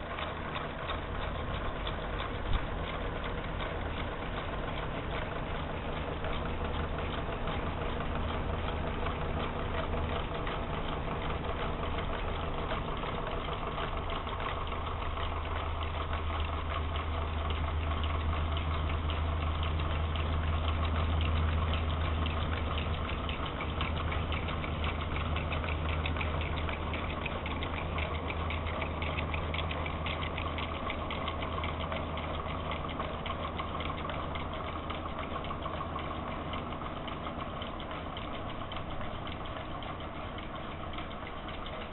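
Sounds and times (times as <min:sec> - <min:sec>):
exhaust fan humming: 0:00.0 - 0:41.9
rapid light clicking: 0:00.0 - 0:41.9.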